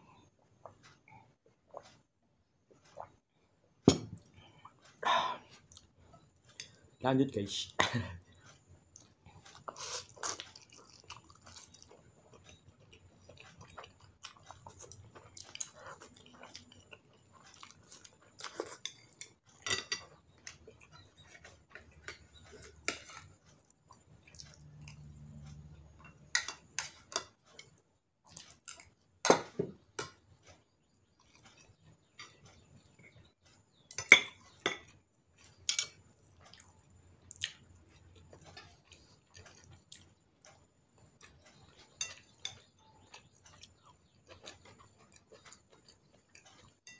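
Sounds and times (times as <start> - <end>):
quiet chewing: 0.0 - 7.0, 8.2 - 29.2, 29.8 - 46.9
utensils clinking on plate and bowl: 18.6 - 20.2, 33.9 - 36.0.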